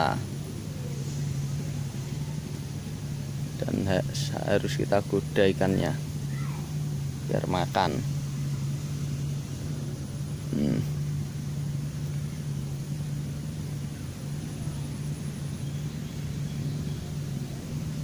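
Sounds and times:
low motor hum: 0.0s - 18.0s
short vocal sound: 10.5s - 11.0s.

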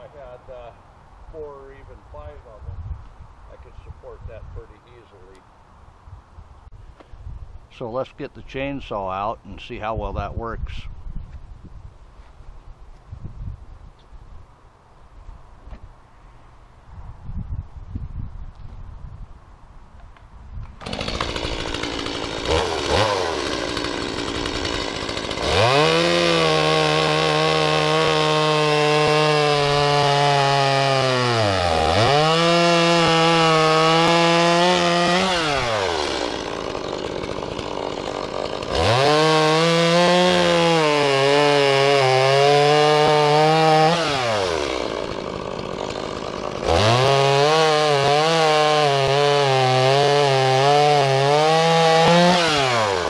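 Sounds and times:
chainsaw cutting log: 20.7s - 53.0s.

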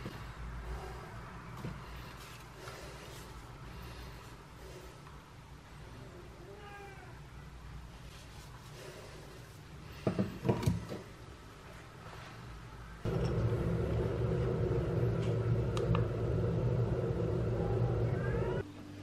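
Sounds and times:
steady low hum: 13.0s - 18.6s.

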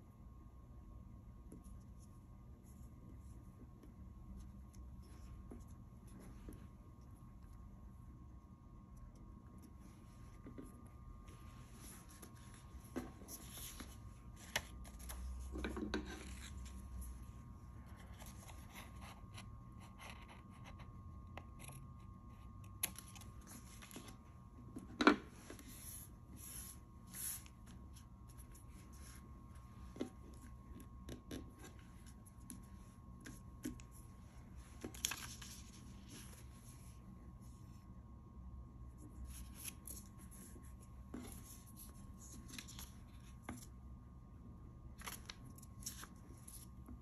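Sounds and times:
paper rustling and scraping: 11.6s - 17.1s, 34.7s - 37.0s.

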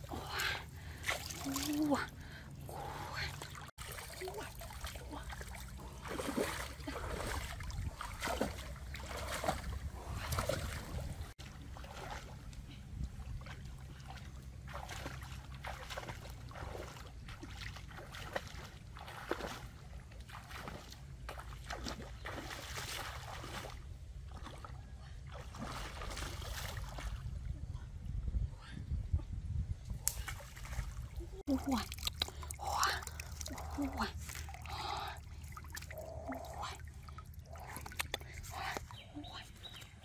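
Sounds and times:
splashing footsteps in stream: 0.0s - 1.9s, 2.7s - 27.4s, 29.9s - 40.0s
water sloshing around legs: 0.0s - 27.4s, 30.1s - 40.0s.

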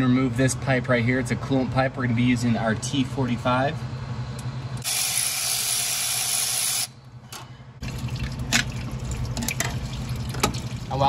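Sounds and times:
coolant spraying with hiss: 4.8s - 6.9s.

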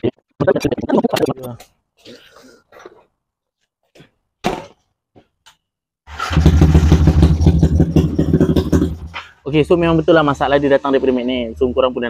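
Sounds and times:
motorcycle engine idling: 6.2s - 9.2s.

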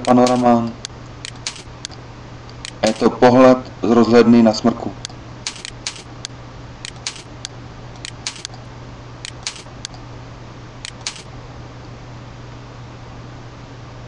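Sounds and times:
steady low hum: 0.0s - 14.0s
computer mouse button clicking: 5.5s - 8.6s, 9.3s - 10.0s, 10.8s - 11.2s.

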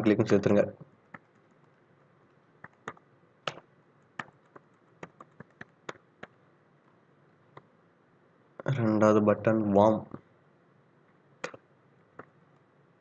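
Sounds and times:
computer keyboard typing: 1.0s - 1.8s, 2.6s - 6.3s.

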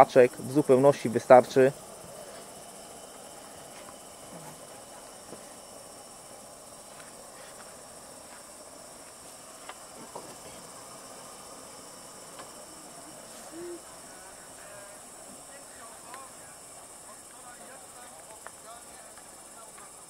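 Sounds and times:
crickets chirring: 0.0s - 20.0s
faint clicks: 16.1s - 16.3s, 18.2s - 19.9s.

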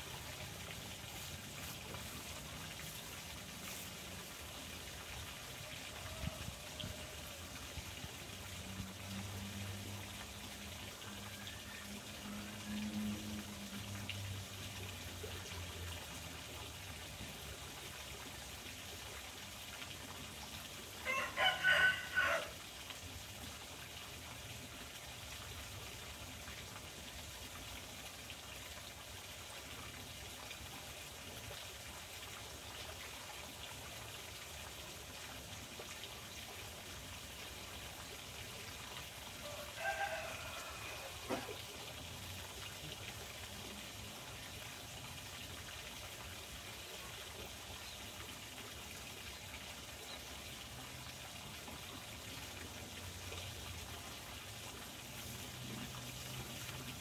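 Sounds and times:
trickle of running water: 0.0s - 57.0s
rooster crowing: 21.0s - 22.6s, 39.4s - 41.5s.

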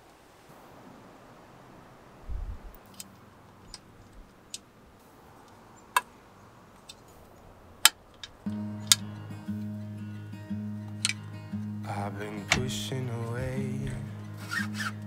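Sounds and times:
low handling thump: 13.4s - 14.2s.

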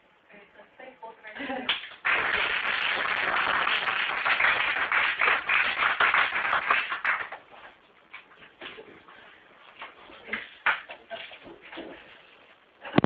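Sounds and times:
audience applause: 2.0s - 7.3s.

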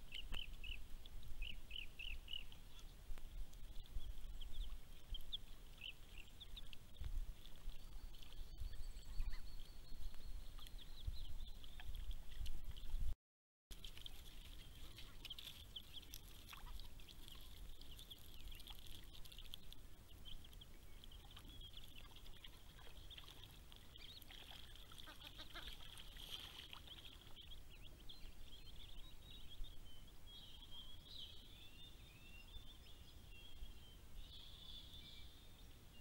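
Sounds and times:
ducklings peeping: 20.2s - 28.0s.

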